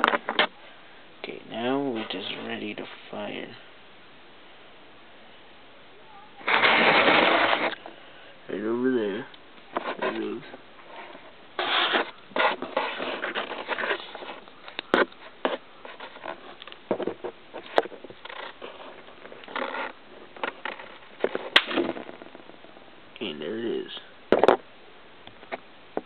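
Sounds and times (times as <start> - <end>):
rustling and scraping handling noise: 0.0 - 0.6, 1.6 - 3.6, 6.4 - 8.0, 9.0 - 22.8.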